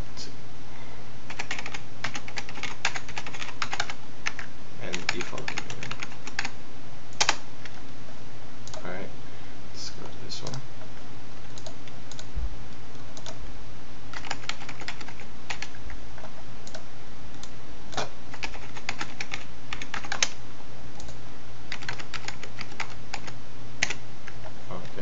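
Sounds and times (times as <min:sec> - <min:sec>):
steady low hum: 0:00.0 - 0:25.0
computer keyboard typing: 0:01.3 - 0:06.6, 0:07.2 - 0:07.8, 0:11.5 - 0:12.3, 0:13.2 - 0:13.4, 0:14.1 - 0:16.8, 0:17.4 - 0:20.4, 0:21.0 - 0:24.4.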